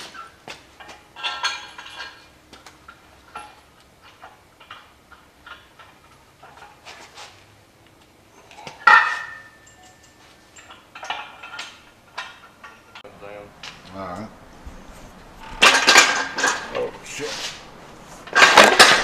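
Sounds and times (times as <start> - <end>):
loud ringing metal clank: 14.8 - 17.1.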